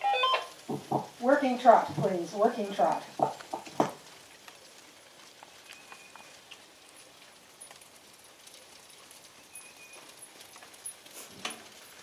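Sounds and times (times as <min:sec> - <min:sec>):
faint hoofbeats trotting: 0:00.6 - 0:04.1.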